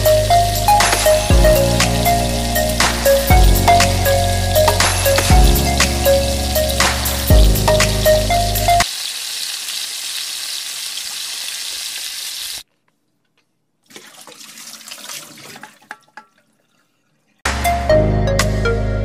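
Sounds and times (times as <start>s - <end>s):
water pouring into frying pan: 8.8s - 12.6s, 13.9s - 17.0s
uneven splashing: 13.8s - 17.4s.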